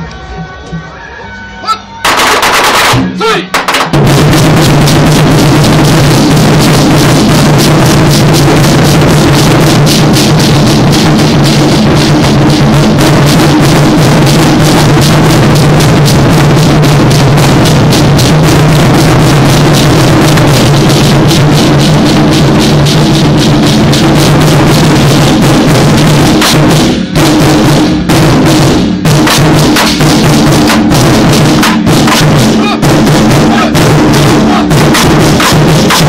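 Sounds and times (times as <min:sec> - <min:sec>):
deep drum tone: 0:02.0 - 0:36.0
large drums rolling: 0:02.0 - 0:36.0.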